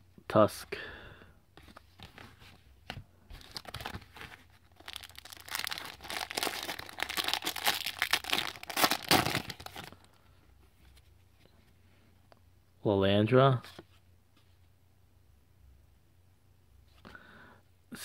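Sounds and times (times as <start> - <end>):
foil wrapper crinkling and tearing: 3.4 - 10.0.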